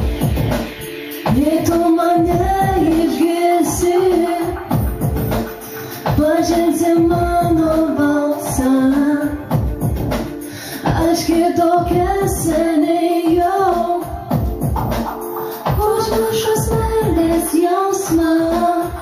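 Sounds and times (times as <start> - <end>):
backing track with steady beat: 0.0 - 19.0
girl singing: 1.3 - 5.0, 6.1 - 9.6, 10.9 - 14.3, 15.7 - 19.0.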